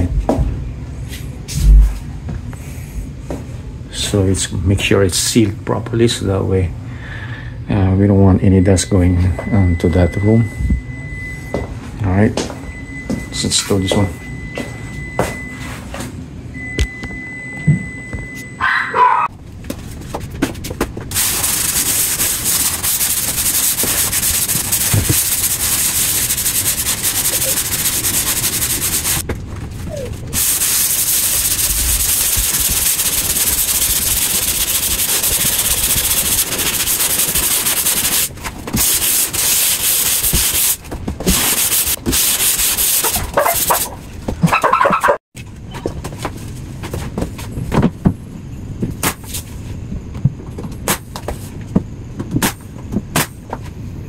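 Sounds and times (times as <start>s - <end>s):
hand sanding joint compound: 21.1s - 29.2s, 30.4s - 43.9s.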